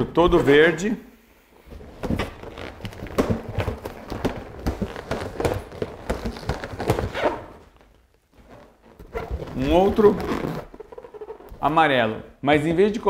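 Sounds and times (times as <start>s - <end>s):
balloons squeaking and rubbing: 1.6s - 12.0s.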